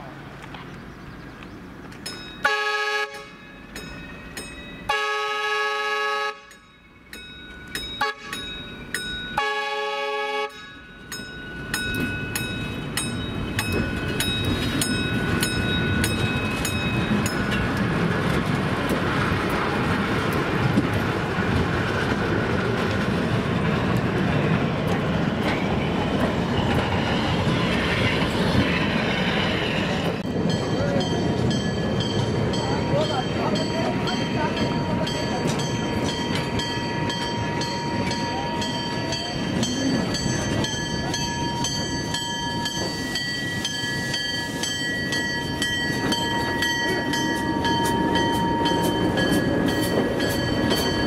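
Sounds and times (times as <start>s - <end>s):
crossing bell ringing: 2.0s - 5.2s, 6.4s - 18.1s, 28.0s - 51.0s
train air horn blasts: 2.5s - 3.4s, 4.9s - 6.6s, 9.4s - 10.6s
train wheels rumbling: 10.5s - 51.0s.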